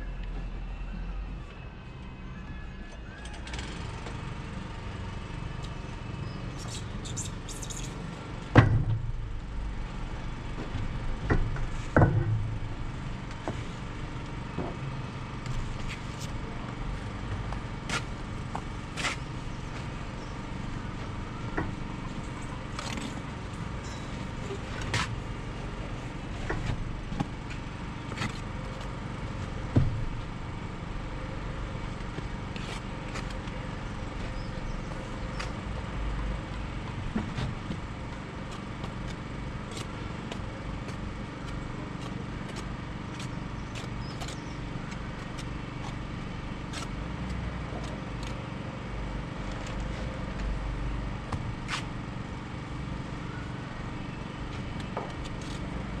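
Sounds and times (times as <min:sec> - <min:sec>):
low outdoor rumble: 0:03.8 - 0:56.0.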